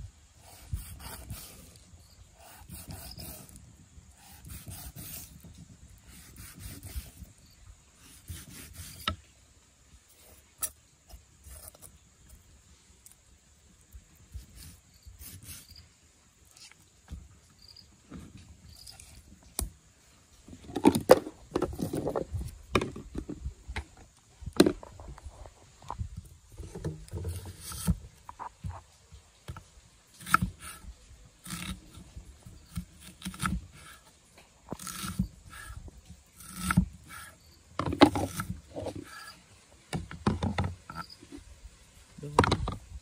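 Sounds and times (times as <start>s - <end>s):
knife cutting on wooden board: 0.4s - 1.6s, 2.4s - 3.6s, 4.2s - 5.4s, 6.1s - 7.3s, 8.0s - 9.2s, 27.2s - 28.0s, 31.4s - 31.8s, 32.7s - 34.1s, 34.7s - 35.8s, 36.4s - 37.4s.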